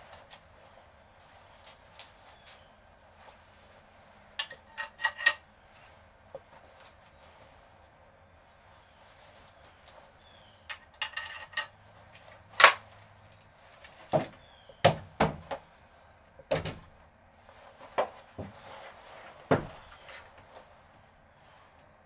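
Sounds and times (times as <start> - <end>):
shotgun action clicking: 12.6 - 12.8
shotgun action snapping: 12.6 - 12.8
knocks on wooden boards: 14.1 - 15.6, 19.5 - 19.8.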